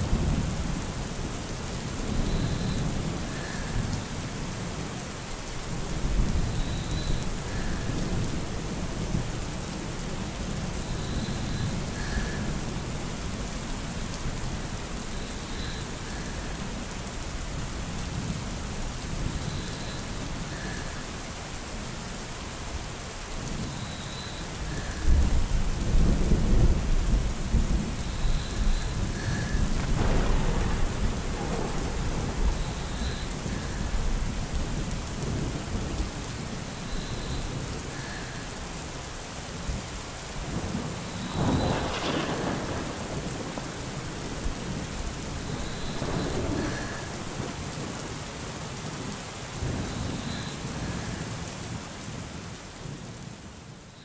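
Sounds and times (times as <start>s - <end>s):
steady rain falling: 0.0s - 54.0s
thunder rumbling: 25.1s - 36.7s, 40.5s - 48.2s.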